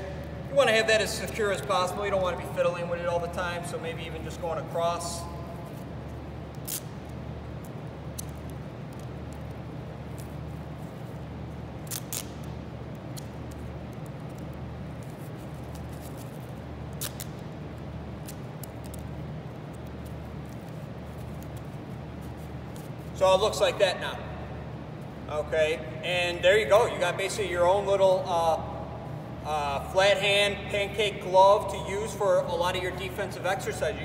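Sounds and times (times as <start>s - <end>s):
steady low hum: 0.0s - 34.0s
duct tape tearing and crackling: 6.5s - 7.0s, 11.8s - 17.4s, 18.2s - 21.7s.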